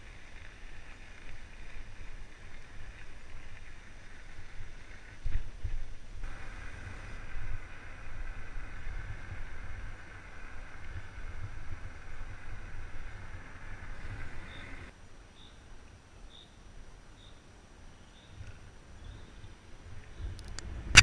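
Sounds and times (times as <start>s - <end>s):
bicycle tyre hiss: 0.0s - 15.0s
wind buffeting microphone: 4.6s - 14.9s.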